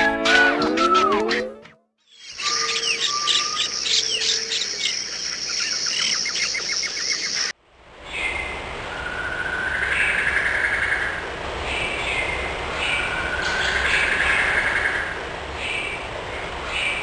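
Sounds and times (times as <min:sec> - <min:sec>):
birds chirping and singing: 0:02.1 - 0:07.5.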